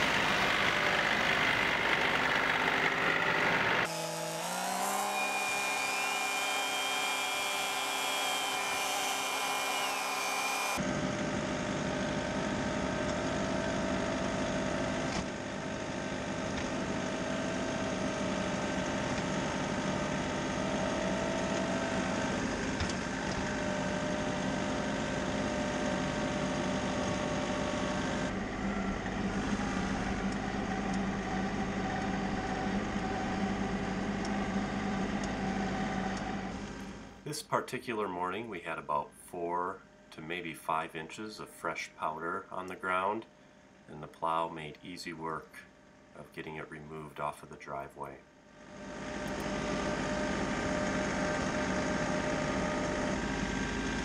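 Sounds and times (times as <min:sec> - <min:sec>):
engine whine: 0:00.0 - 0:37.2, 0:48.6 - 0:54.0
snow plow engine running: 0:00.0 - 0:37.2, 0:48.7 - 0:54.0.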